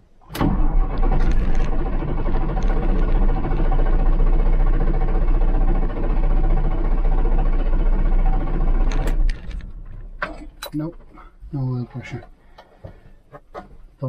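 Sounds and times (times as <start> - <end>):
starter motor cranking diesel engine: 0.2 - 10.6.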